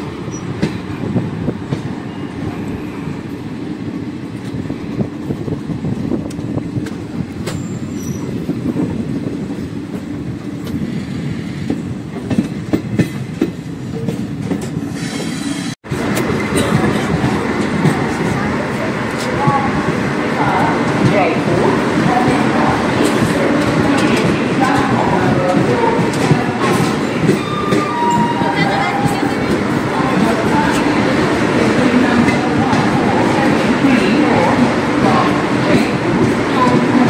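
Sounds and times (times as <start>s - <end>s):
train wheels rumbling on rails: 0.0s - 37.0s.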